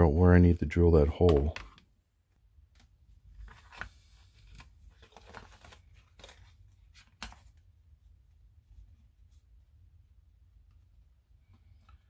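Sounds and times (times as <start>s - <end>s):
plastic parts rustling and clicking: 3.4s - 7.4s.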